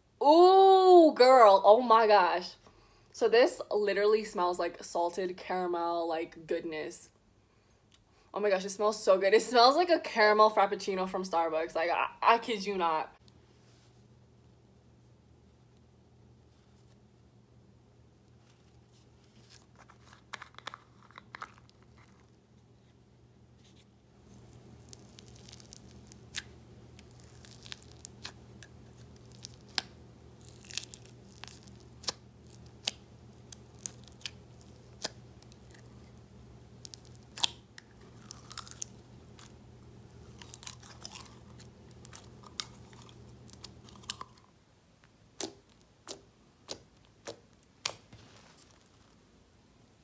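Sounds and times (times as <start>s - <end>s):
low steady hum: 0.0s - 50.0s
foam slime popping and crackling: 24.3s - 36.1s, 36.8s - 39.6s.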